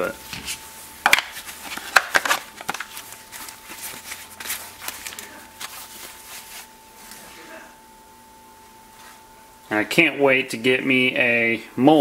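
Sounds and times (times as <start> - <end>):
plastic holster clicks and crinkles: 1.1 - 5.2.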